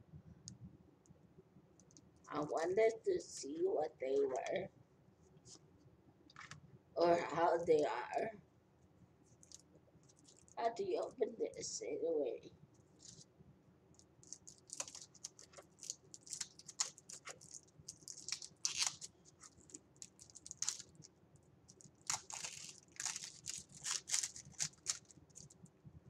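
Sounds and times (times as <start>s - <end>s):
plastic packaging crinkling: 9.4s - 10.6s, 14.0s - 21.1s, 21.7s - 25.6s.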